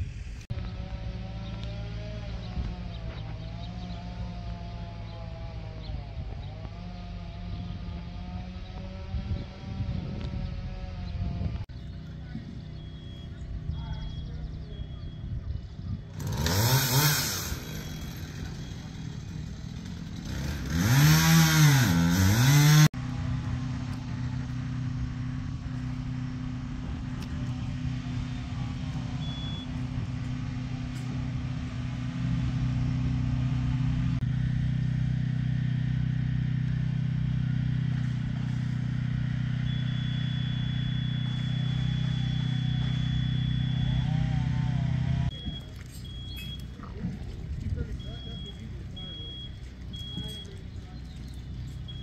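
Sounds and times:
engine revving: 0:00.0 - 0:52.0
steady engine hum: 0:00.0 - 0:52.0.

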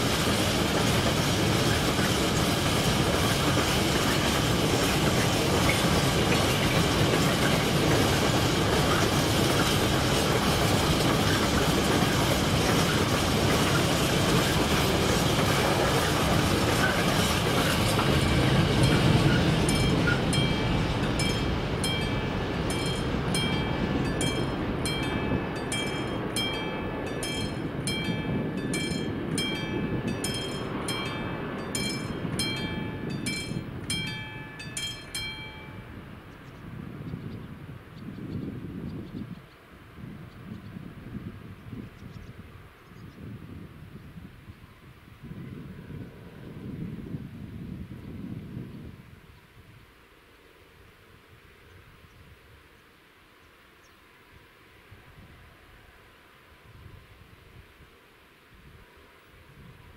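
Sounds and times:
freight train wheels clattering: 0:00.0 - 0:35.8
level crossing warning bell: 0:18.2 - 0:36.0.

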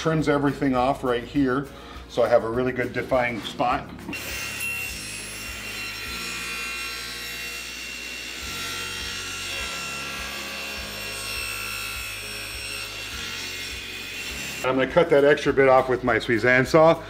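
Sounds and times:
table saw cutting wood: 0:04.0 - 0:14.8.

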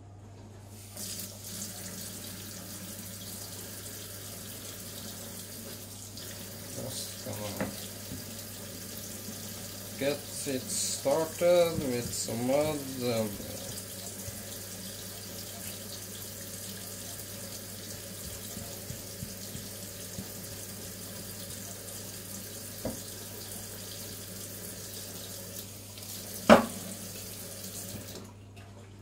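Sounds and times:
tap running into metal sink: 0:07.3 - 0:08.4, 0:10.0 - 0:14.6, 0:17.8 - 0:21.7, 0:22.8 - 0:23.1, 0:26.4 - 0:27.0.

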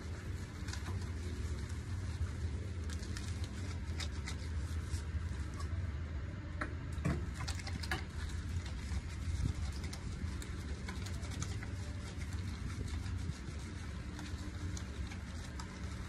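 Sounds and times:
steady low hum: 0:00.0 - 0:16.0
hands squelching shampoo lather: 0:07.6 - 0:16.0.

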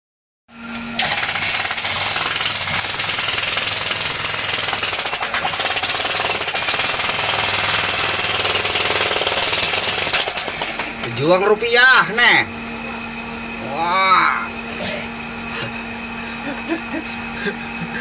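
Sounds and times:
jackhammer hammering into rock: 0:01.0 - 0:11.5.

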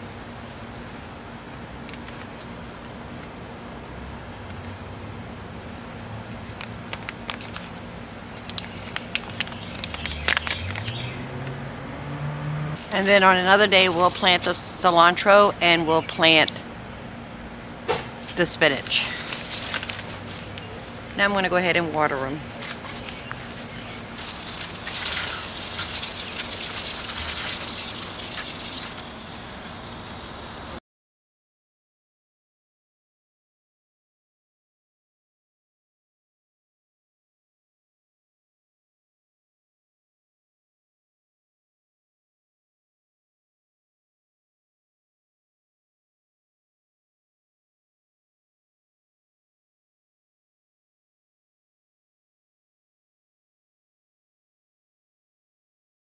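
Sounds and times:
paper packet crinkling: 0:06.4 - 0:11.0, 0:18.8 - 0:20.5, 0:22.6 - 0:29.5
vehicle engine rising in pitch: 0:10.1 - 0:13.0
hose nozzle spraying water on soil: 0:24.2 - 0:30.8.

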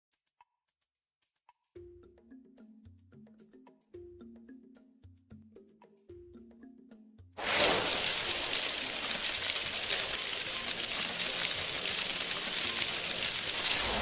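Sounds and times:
bright sparkle hiss: 0:07.4 - 0:14.0.

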